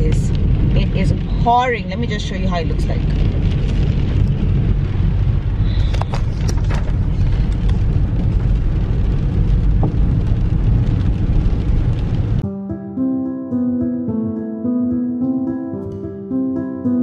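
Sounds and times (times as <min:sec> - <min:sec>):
rain pattering on windscreen and roof: 0:00.0 - 0:12.4
road and engine rumble: 0:00.0 - 0:12.4.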